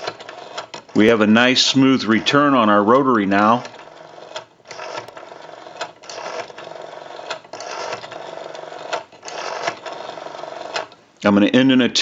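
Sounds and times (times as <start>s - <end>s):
rotary telephone dial whirring: 0.0s - 1.2s, 3.4s - 11.0s.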